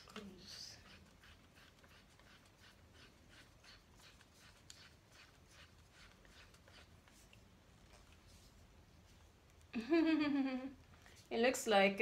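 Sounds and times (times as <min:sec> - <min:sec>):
scratchy strokes on plastic: 0:00.0 - 0:09.3
low room hum: 0:00.0 - 0:12.0.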